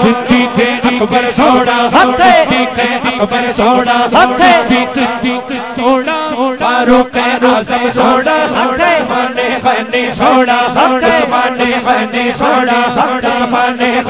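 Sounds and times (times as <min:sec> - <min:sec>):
man chanting: 0:00.0 - 0:14.0.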